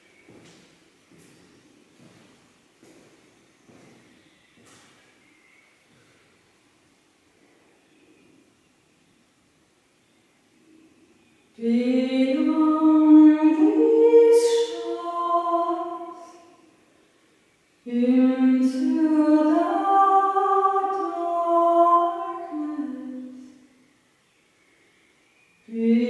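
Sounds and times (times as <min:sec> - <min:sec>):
woman singing a cappella: 0:11.5 - 0:16.8, 0:17.8 - 0:23.7, 0:25.6 - 0:26.0.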